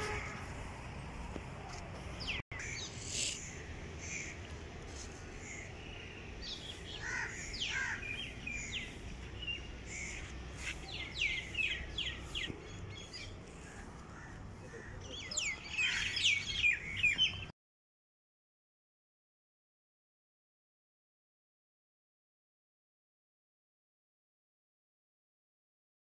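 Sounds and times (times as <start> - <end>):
birds calling and chirping: 1.6 - 17.5.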